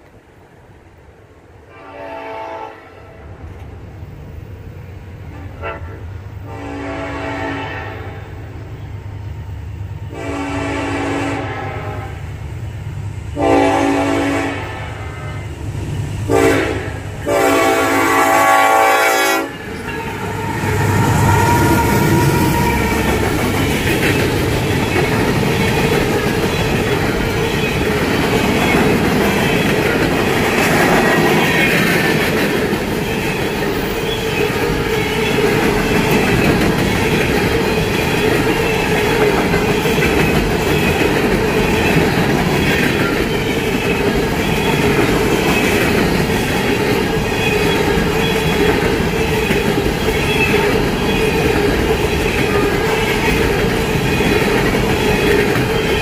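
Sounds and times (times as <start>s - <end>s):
train horn: 1.7s - 3.3s, 5.3s - 8.4s, 10.1s - 12.2s, 13.4s - 15.5s, 16.3s - 23.2s
freight cars clacking over rails: 19.5s - 56.0s
locomotives rumbling: 19.5s - 56.0s.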